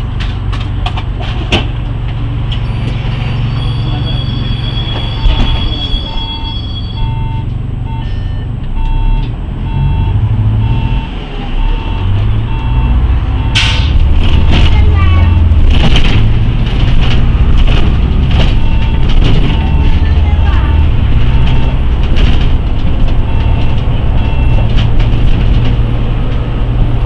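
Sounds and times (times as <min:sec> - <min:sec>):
bus diesel engine running: 0:00.0 - 0:27.0
short electronic warning beeps: 0:03.6 - 0:13.8.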